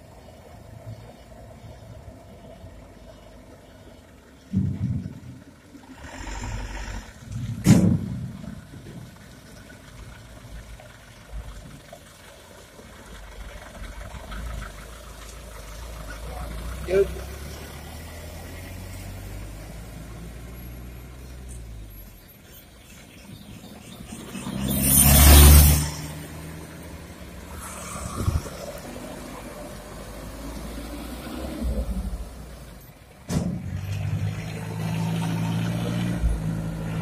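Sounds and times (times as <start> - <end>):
truck diesel engine running steadily: 0.0 - 17.9
truck diesel engine driving past: 0.0 - 22.5, 23.3 - 37.0.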